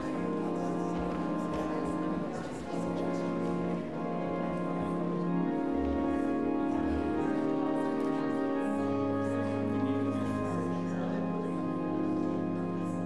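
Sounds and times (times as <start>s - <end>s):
church organ playing chords: 0.0s - 13.0s.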